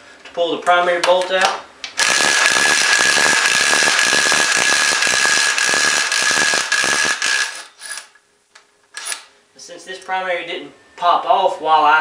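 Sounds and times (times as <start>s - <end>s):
impact wrench hammering: 2.0s - 7.9s.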